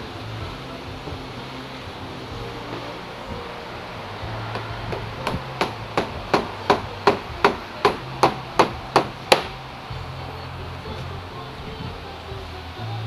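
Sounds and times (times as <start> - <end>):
mallet knocking on grip: 4.5 - 9.6.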